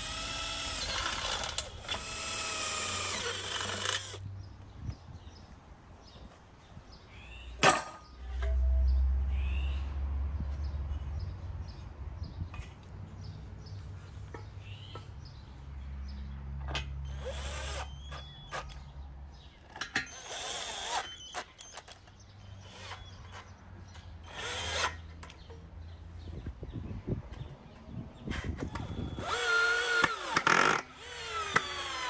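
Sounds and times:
cordless drill whirring: 0:00.0 - 0:04.2, 0:28.7 - 0:32.0.

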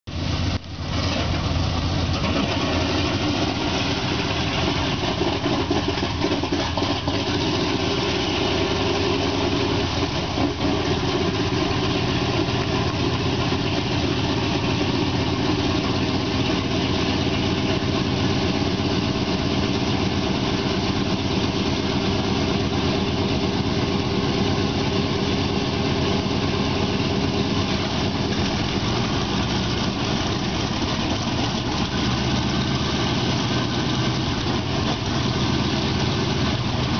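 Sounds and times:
radial aircraft engines idling: 0:08.8 - 0:32.8.

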